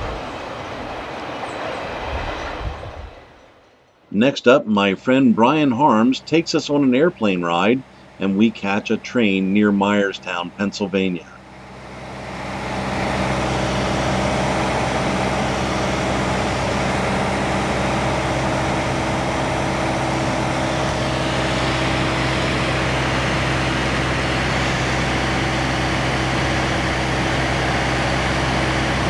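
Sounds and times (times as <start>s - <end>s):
rushing air: 0.0s - 4.2s
plane engine and propeller droning: 0.0s - 29.0s.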